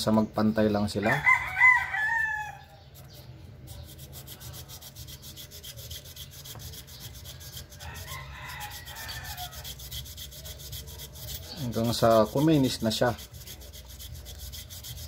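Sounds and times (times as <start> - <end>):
rooster crowing: 1.0 - 2.7, 7.8 - 9.7
sandpaper rasping on metal contacts: 2.6 - 15.0.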